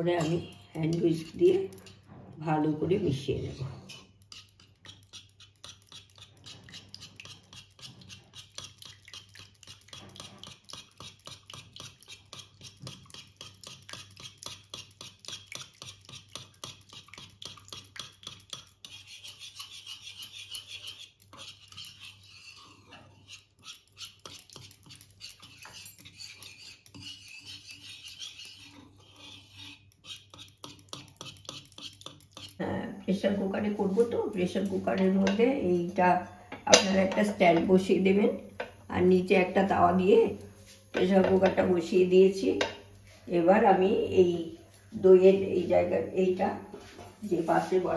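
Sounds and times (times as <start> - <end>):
wire whisk scraping a pan: 0.0 - 32.8, 33.6 - 37.6.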